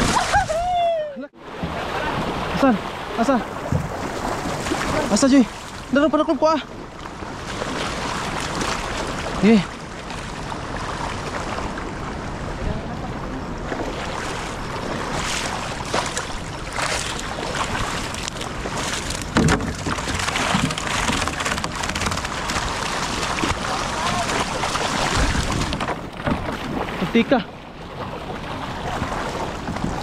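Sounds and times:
landing net sweeping water: 0.0 - 0.6, 1.4 - 6.0, 7.2 - 11.8, 13.7 - 30.0
person wading: 0.0 - 5.9, 13.7 - 30.0
moving water: 0.0 - 30.0
fish thrashing in shallow water: 1.5 - 5.9, 13.7 - 30.0.

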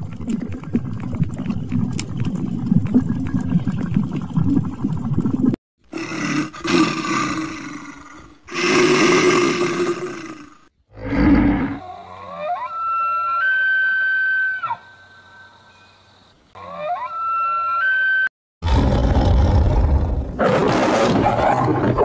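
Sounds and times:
low rumble with crackles: 0.0 - 5.6.

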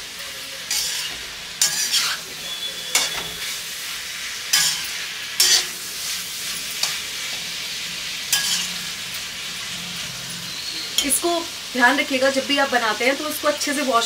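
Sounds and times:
vegetables sizzling in oil: 0.0 - 14.0
metal spatula scraping pan: 0.7 - 3.7, 4.4 - 7.5, 8.3 - 9.3.

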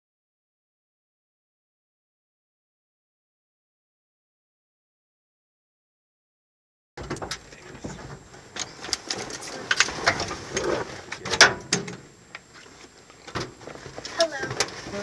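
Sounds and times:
clicks and knocks in truck cab: 7.0 - 10.3
rustling: 7.0 - 15.0.

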